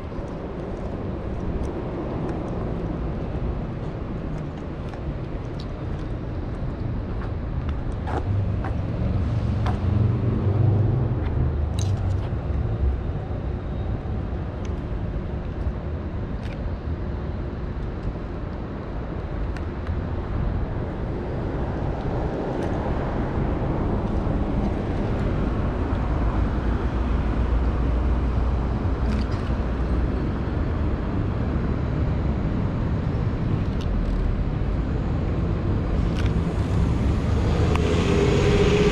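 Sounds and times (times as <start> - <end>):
deep engine rumble: 0.0 - 17.5
city street traffic: 0.0 - 38.9
vehicle passing by: 36.4 - 38.9.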